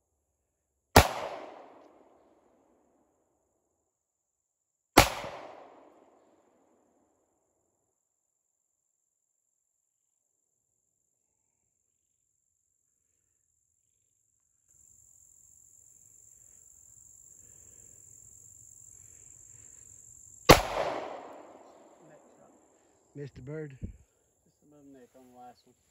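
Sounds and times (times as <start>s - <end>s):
pistol shot: 1.0s - 2.1s, 5.0s - 6.2s, 20.5s - 22.0s
insects droning: 8.0s - 25.9s.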